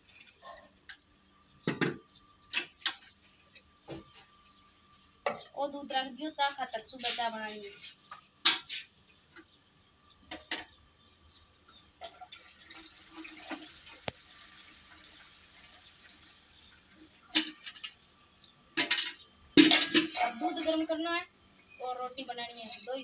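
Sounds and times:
milk trickling through strainer: 12.0s - 17.9s
steel pots clanking: 12.0s - 18.0s, 18.8s - 20.9s.

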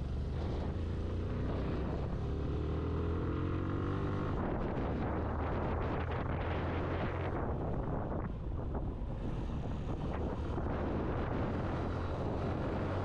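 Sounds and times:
wind noise on microphone: 3.8s - 13.0s.

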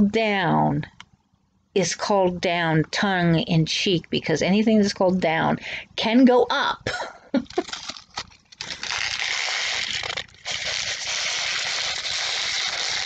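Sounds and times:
small items rustling and scraping: 7.4s - 13.0s.

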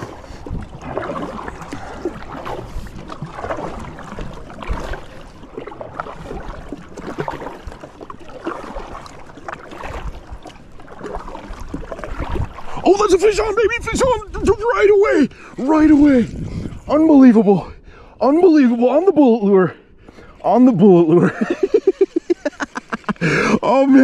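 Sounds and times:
paddle splashing in water: 0.0s - 17.4s
water along kayak hull: 0.0s - 24.0s.

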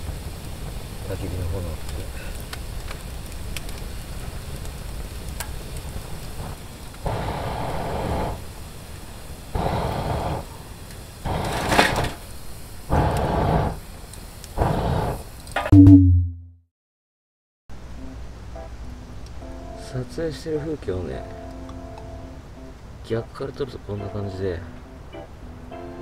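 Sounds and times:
campfire crackling: 0.0s - 15.6s, 18.0s - 25.7s
puffs of air blown into fire: 1.9s - 15.6s.

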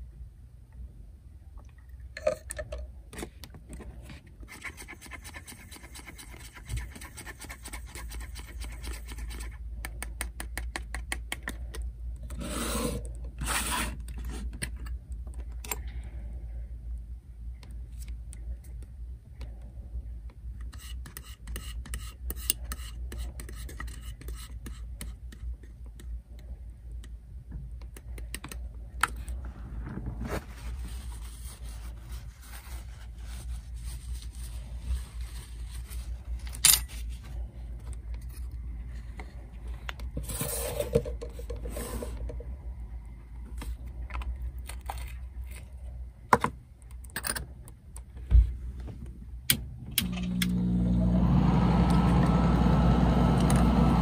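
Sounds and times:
steady low hum: 11.4s - 54.0s
plastic parts clicking and scraping: 43.4s - 48.2s.

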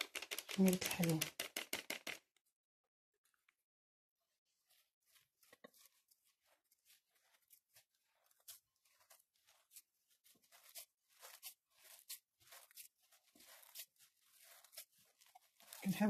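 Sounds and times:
hand squishing dough in bowl: 4.2s - 16.0s.

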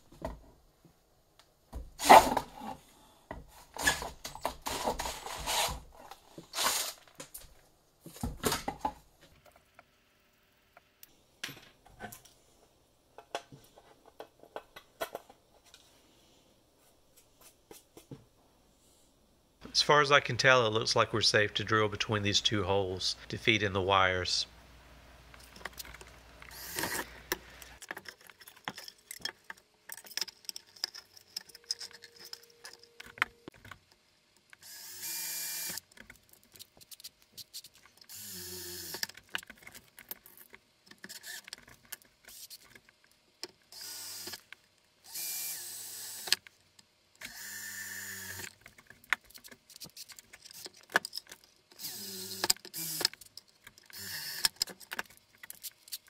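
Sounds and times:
clicks and clatter of handled parts: 25.3s - 34.6s, 35.7s - 38.1s, 38.8s - 43.7s, 48.4s - 56.0s
cordless drill running: 26.5s - 27.1s, 34.6s - 35.8s, 38.1s - 39.0s, 43.8s - 44.4s, 45.1s - 46.3s, 47.2s - 48.5s, 51.8s - 53.0s, 53.9s - 54.5s.

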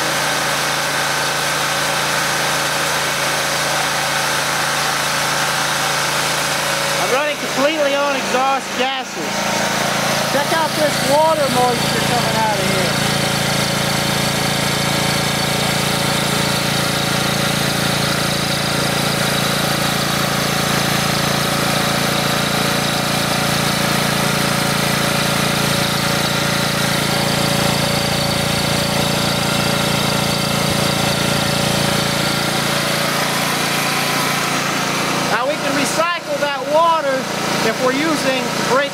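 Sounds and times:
small generator engine running: 0.0s - 38.9s.

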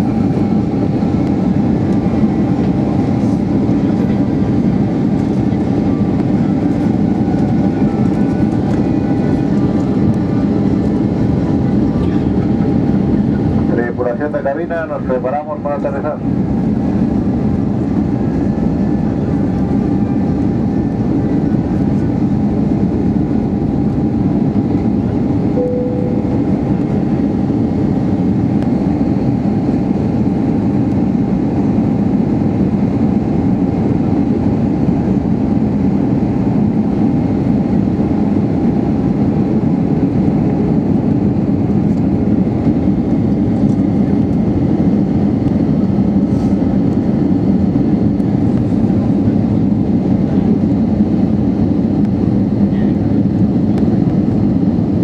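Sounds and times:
airplane cabin engine roar: 0.0s - 55.0s
faint steady whine: 25.5s - 27.6s
brief tone: 25.6s - 26.9s.

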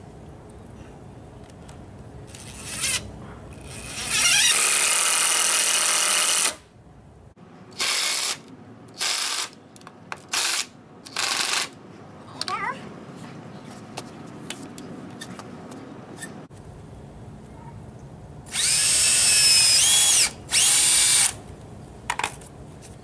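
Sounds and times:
cordless drill driving screws: 3.6s - 6.6s, 7.8s - 8.4s, 9.0s - 9.6s, 10.3s - 11.7s, 18.5s - 21.4s.

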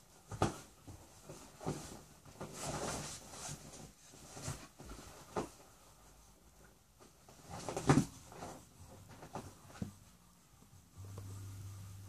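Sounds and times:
rustling and scraping on leather: 0.3s - 6.1s.

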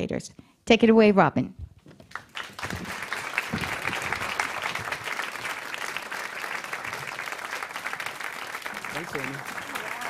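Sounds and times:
audience applauding: 2.0s - 10.0s.

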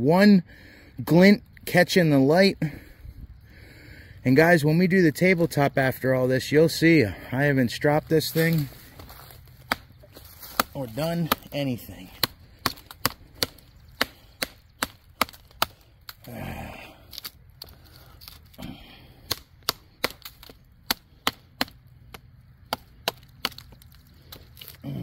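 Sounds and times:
knife chopping into tree stump: 9.6s - 15.8s.

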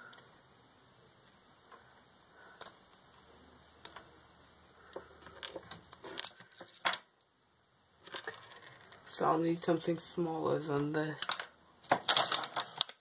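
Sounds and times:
plastic pieces clicking: 11.1s - 13.0s.

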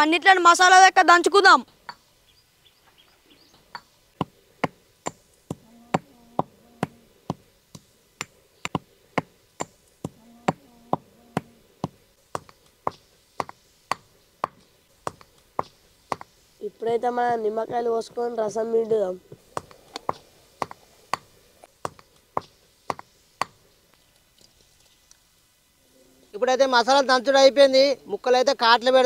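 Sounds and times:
spices pounded by hand: 3.7s - 16.4s, 19.3s - 23.7s.

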